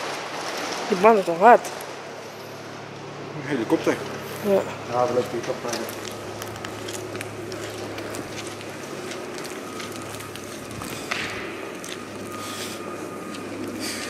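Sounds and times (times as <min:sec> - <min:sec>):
low drone: 0:00.0 - 0:14.0
footsteps on gritty concrete: 0:05.1 - 0:14.0.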